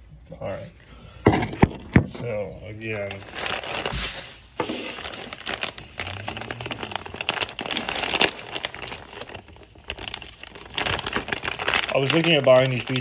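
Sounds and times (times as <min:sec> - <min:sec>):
plastic packaging crinkling: 0:02.6 - 0:13.0.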